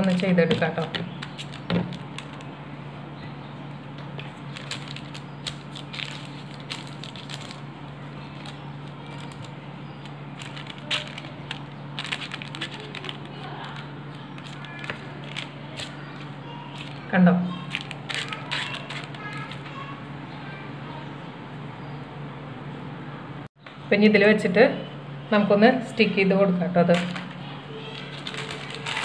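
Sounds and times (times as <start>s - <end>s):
paper crinkling: 0.0s - 2.7s, 4.0s - 19.7s, 26.9s - 29.0s
steady low hum: 0.0s - 29.0s.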